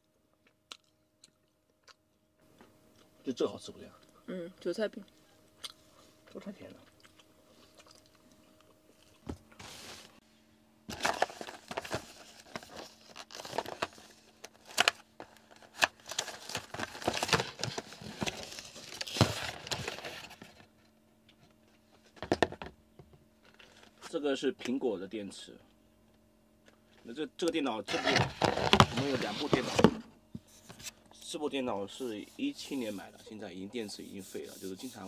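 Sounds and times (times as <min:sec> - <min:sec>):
plastic blister pack crinkling: 0:10.9 - 0:20.3
cardboard box tearing: 0:27.9 - 0:30.0.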